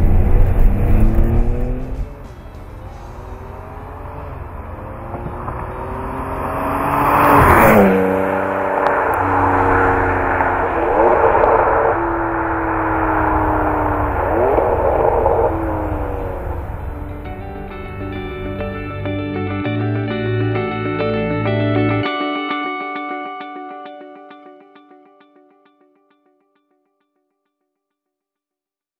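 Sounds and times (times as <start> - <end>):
sports car passing at speed: 0.0 - 19.3.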